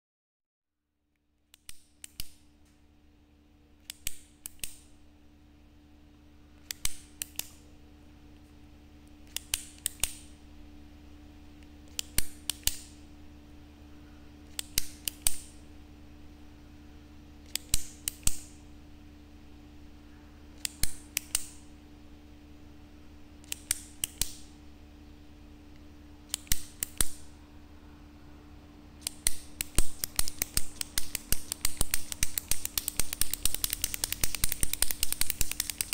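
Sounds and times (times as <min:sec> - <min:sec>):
faint steady hum: 0:00.7 - 0:35.9
ballpoint pen clicking: 0:26.3 - 0:27.2, 0:29.0 - 0:35.9.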